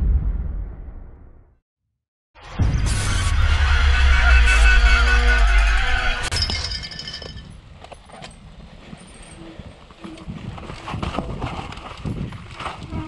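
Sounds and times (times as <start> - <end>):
music: 2.4 - 6.3.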